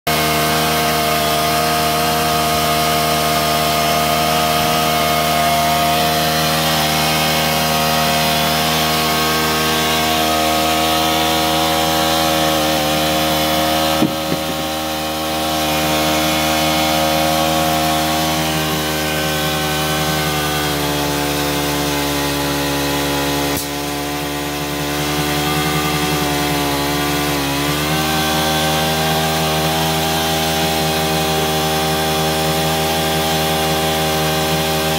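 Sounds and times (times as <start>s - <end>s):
drilling rig engine running: 0.1s - 34.9s
sharp knock: 14.0s - 14.8s.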